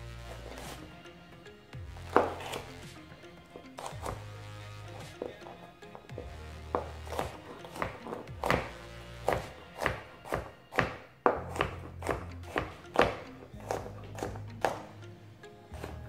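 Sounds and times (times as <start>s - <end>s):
background music: 0.0s - 16.0s
knife chopping on plastic board: 6.7s - 14.9s.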